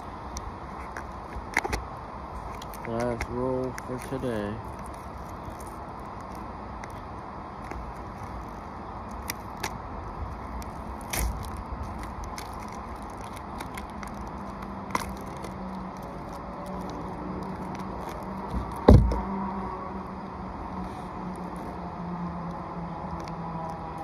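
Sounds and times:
steady background noise: 0.0 - 24.0
tape clicking and crackling: 0.3 - 19.4, 22.4 - 24.0
loud thump: 18.5 - 19.2.

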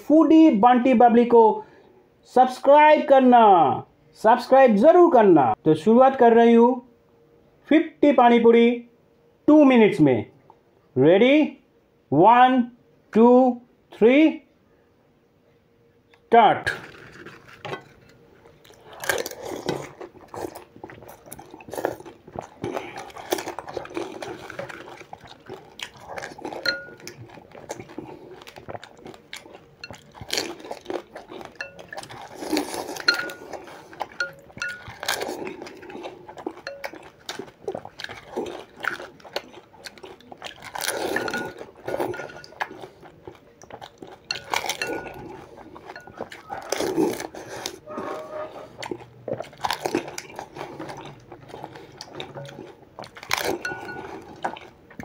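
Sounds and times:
crunching and chewing: 16.7 - 55.0
clinks against glass bowl: 26.6 - 27.1, 31.6 - 32.0, 33.0 - 33.6, 34.2 - 35.1, 36.6 - 37.0, 44.3 - 45.2, 53.6 - 54.2.

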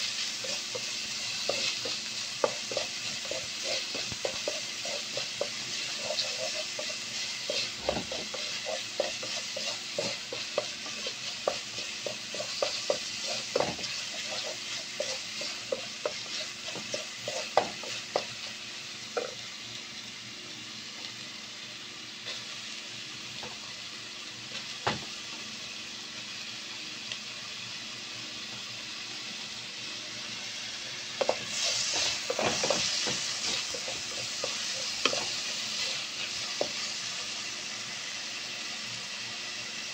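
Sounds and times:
onions sizzling in oil: 0.0 - 39.9
wooden spatula scraping a pan: 0.2 - 18.3, 31.2 - 36.9.

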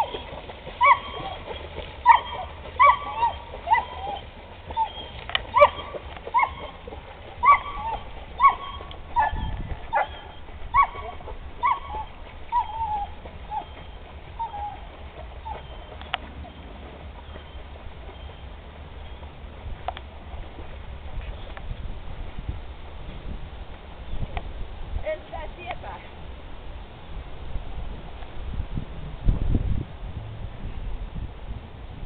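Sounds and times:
dog yelping and whining: 0.0 - 15.9.

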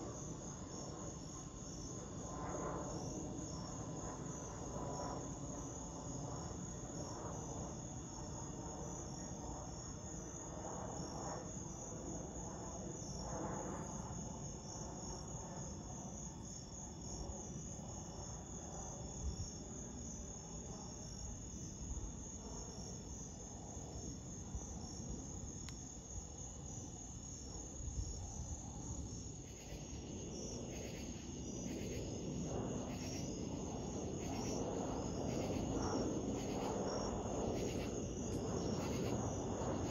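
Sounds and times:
crickets chirping: 0.0 - 39.9
jet airliner rumble overhead: 0.0 - 39.9
pulsing insect call: 19.6 - 39.9.

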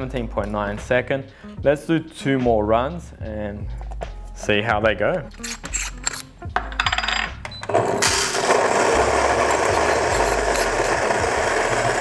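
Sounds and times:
coffee grinder grinding: 7.7 - 12.0
coffee beans clattering: 8.0 - 12.0.

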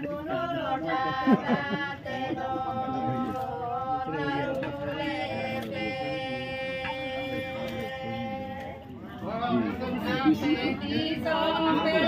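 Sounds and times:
voices singing slow chant-like song: 0.0 - 12.0.

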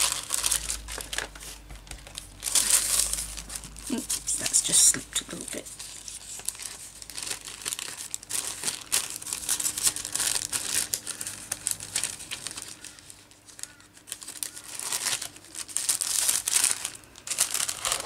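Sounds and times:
plastic pouch crinkling: 0.0 - 18.0.

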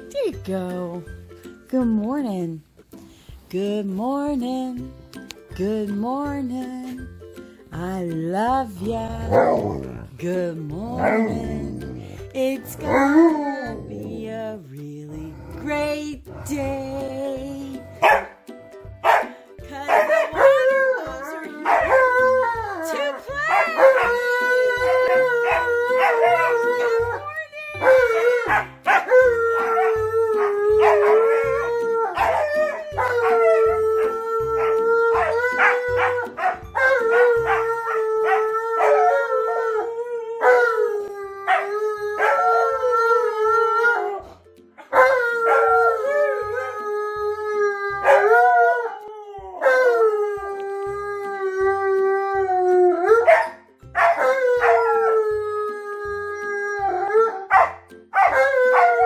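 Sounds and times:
dogs howling together: 9.2 - 10.0, 11.0 - 12.0, 12.8 - 14.2, 20.0 - 59.0.

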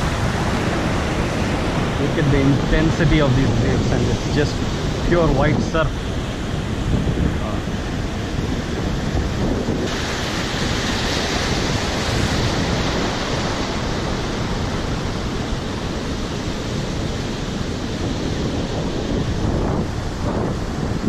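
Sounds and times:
surf breaking over rocks: 0.0 - 21.0.

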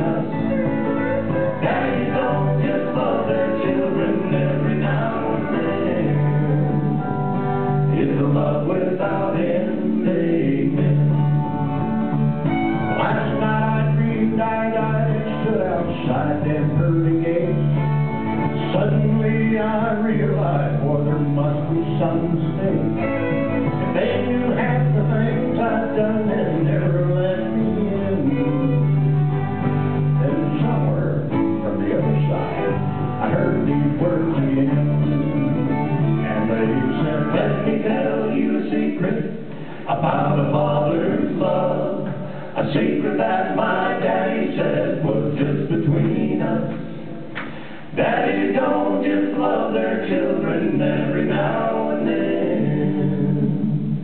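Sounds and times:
person singing: 0.0 - 6.9
country band playing: 0.0 - 54.0.

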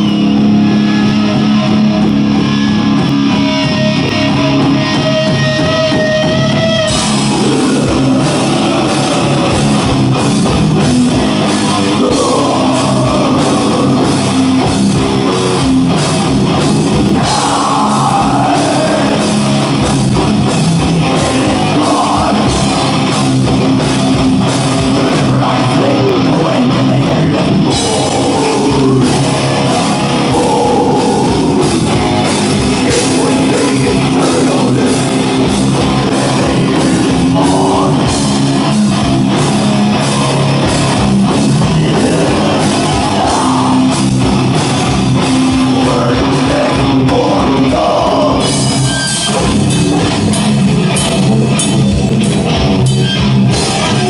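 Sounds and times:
bass guitar: 0.0 - 54.0
distorted electric guitar: 0.0 - 54.0
pounding drum kit: 0.0 - 54.0
person singing: 6.9 - 10.0, 11.1 - 15.6, 17.1 - 19.9, 21.0 - 23.2, 24.8 - 32.0, 32.6 - 38.4, 41.4 - 44.5, 45.3 - 48.7.

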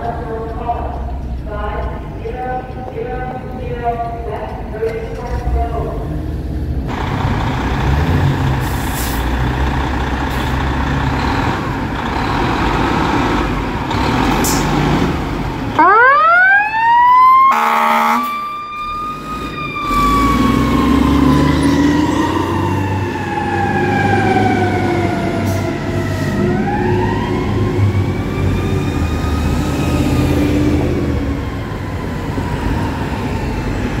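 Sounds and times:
truck engine rumble: 0.0 - 34.0
fire engine siren wailing: 15.6 - 34.0
air horn blast: 17.5 - 18.4.

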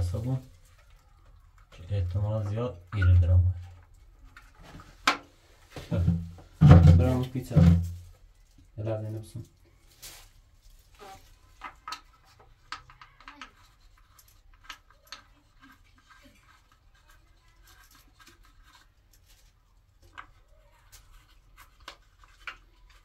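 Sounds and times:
hands clicking and scraping plastic: 11.4 - 23.0.

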